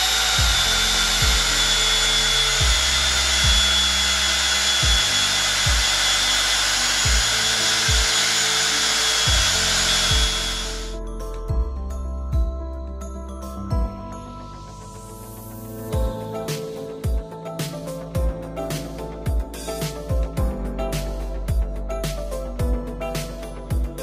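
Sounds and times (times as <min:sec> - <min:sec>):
cordless drill whining: 0:00.0 - 0:11.0
background music with steady beat: 0:00.0 - 0:24.0.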